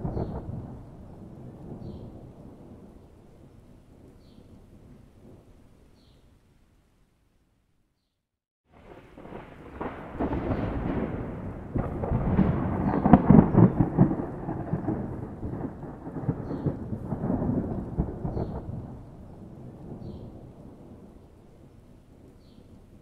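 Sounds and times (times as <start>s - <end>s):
rolling thunder: 0.0s - 3.4s, 8.7s - 21.4s.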